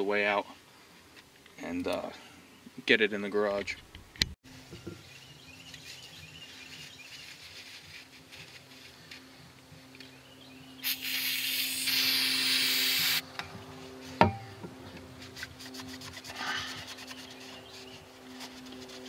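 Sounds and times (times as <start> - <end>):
steady hiss: 10.8 - 13.2.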